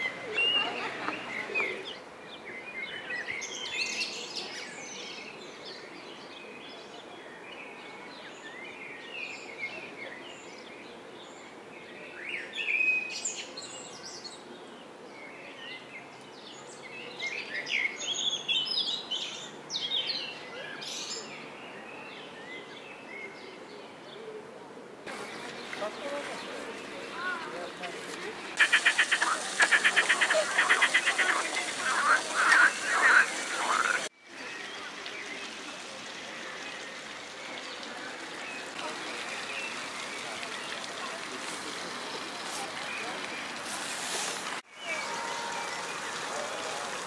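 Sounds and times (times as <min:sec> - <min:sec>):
steady background noise: 0:22.9 - 0:47.0
songbirds chirping and singing: 0:28.6 - 0:35.3.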